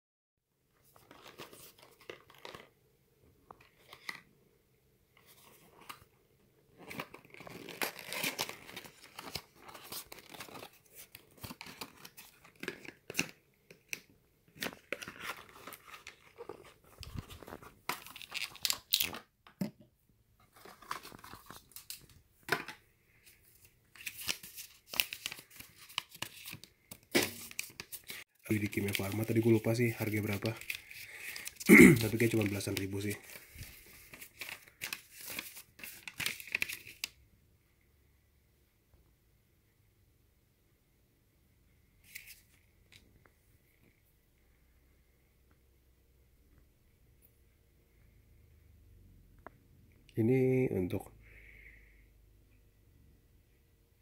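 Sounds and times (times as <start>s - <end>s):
cardboard and paper rustling: 0.8s - 2.8s, 6.8s - 14.0s, 14.6s - 19.2s, 20.4s - 37.1s.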